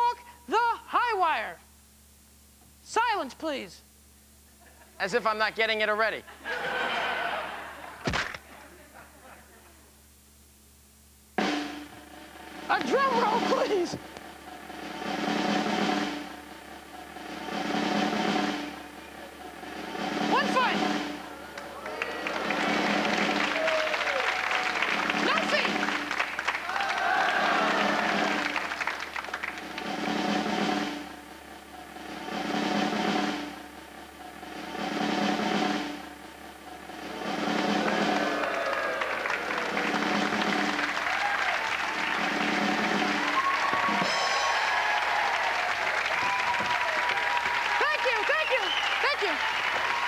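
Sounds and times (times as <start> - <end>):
snare drum roll: 11.4 - 50.0.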